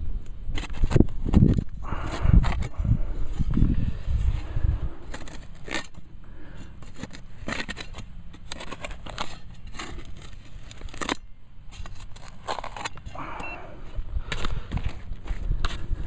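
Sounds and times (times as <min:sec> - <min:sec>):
shovel scraping soil: 0:04.2 - 0:13.6.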